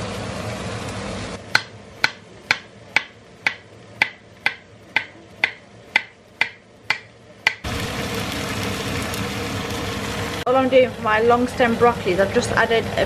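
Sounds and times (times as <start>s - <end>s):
pan boiling hiss: 0.0s - 13.0s
knife chopping on a board: 1.5s - 7.6s.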